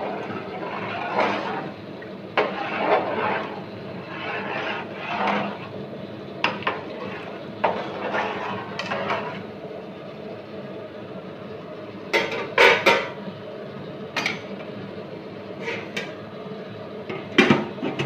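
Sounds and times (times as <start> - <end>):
ladle swishing through liquid: 0.0 - 1.8, 2.4 - 5.8, 7.0 - 9.4.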